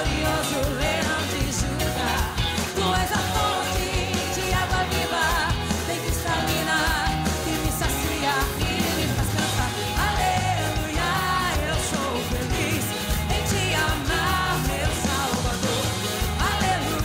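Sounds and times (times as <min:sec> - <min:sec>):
gospel band playing: 0:00.0 - 0:17.0
woman singing lead vocal: 0:00.0 - 0:17.0.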